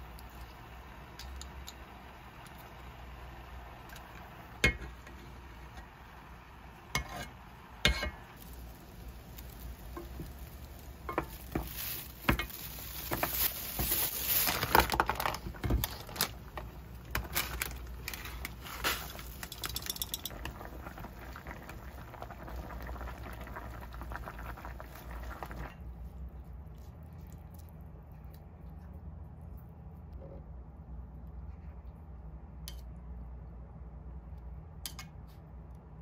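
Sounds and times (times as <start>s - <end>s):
broth boiling in a saucepan: 0.0s - 26.3s
splashes and clinks against pot: 19.2s - 20.6s.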